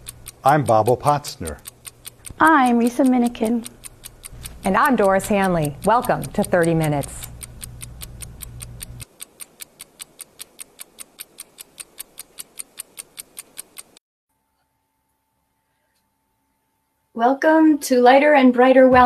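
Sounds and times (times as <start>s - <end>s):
faint steady hum: 0.0s - 13.8s
stopwatch ticking: 0.0s - 14.0s.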